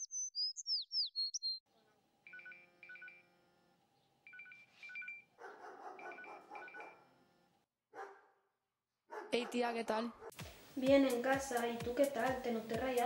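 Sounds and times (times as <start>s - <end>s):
phone ringtone beeps: 2.3s - 3.3s, 4.3s - 5.3s.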